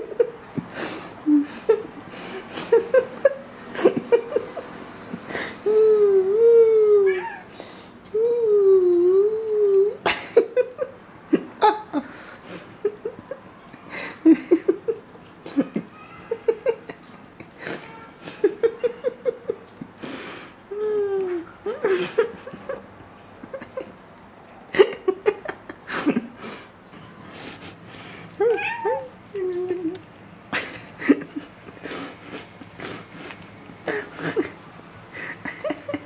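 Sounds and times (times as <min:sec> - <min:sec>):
cats chirping and meowing: 0:06.2 - 0:07.6, 0:15.6 - 0:19.8, 0:28.3 - 0:30.0.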